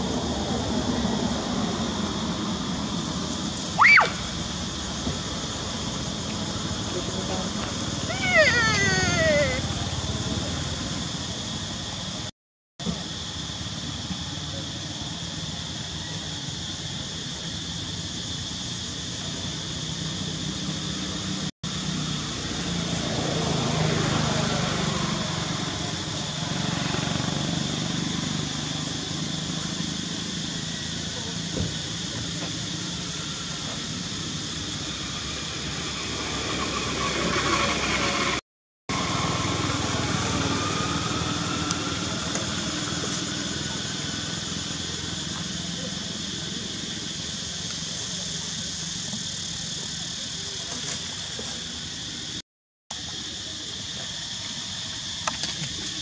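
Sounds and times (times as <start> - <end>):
steady hiss: 40.7 - 52.4, 53.0 - 56.0.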